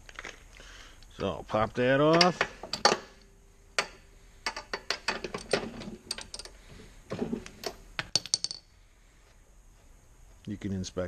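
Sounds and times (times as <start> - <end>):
wrench clattering on concrete: 2.1 - 6.6, 7.2 - 8.8.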